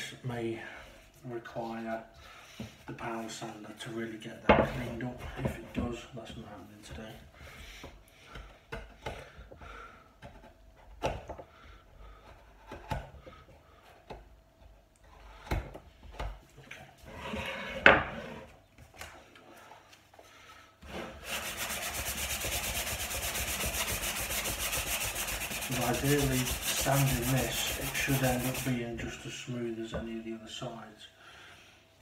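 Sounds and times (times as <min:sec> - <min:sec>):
sandpaper rubbing wood: 0:21.0 - 0:28.9.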